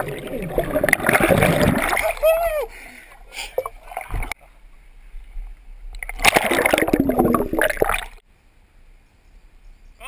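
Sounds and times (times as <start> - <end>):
river water sloshing: 0.0 - 2.3.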